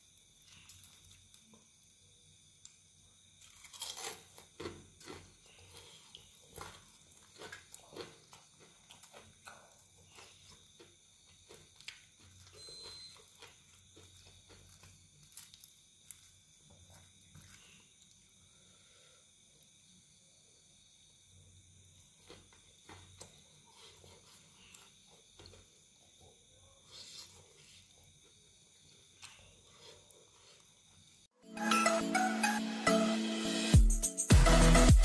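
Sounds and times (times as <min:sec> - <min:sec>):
fried chicken crust crunching: 0:03.4 - 0:17.8.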